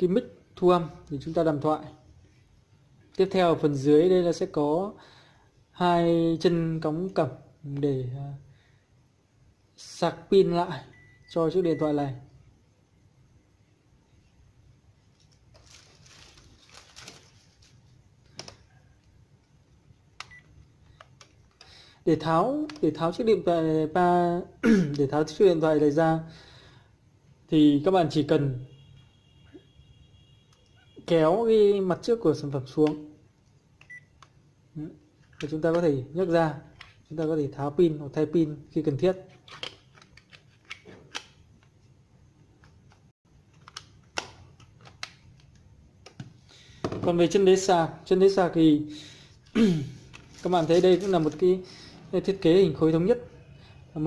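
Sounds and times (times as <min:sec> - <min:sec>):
plastic clicks of phone handset: 0:42.9 - 0:46.3.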